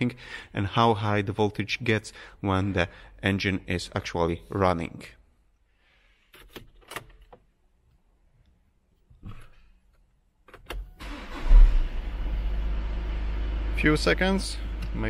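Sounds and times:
diesel engine cranking and idling: 0:11.0 - 0:15.0.

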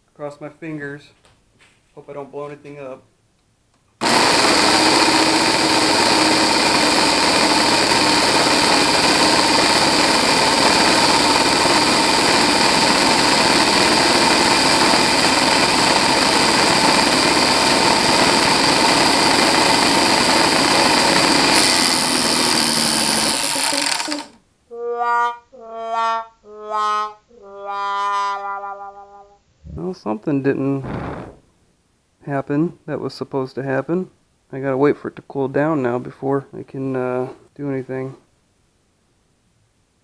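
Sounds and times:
compressor motor whining: 0:04.0 - 0:24.4.

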